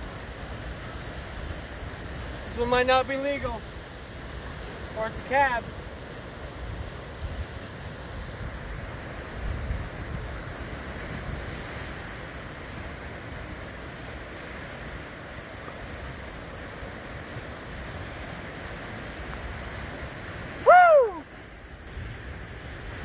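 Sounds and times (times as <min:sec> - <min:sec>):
ocean surf around rocks: 0:00.0 - 0:23.0
wind rumbling on microphone: 0:06.1 - 0:23.0.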